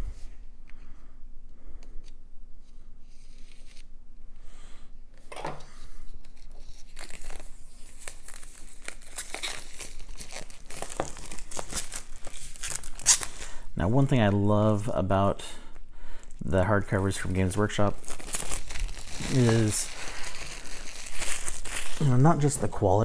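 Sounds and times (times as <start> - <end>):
plastic shrink-wrap crinkling: 6.0 - 14.1, 16.2 - 23.0.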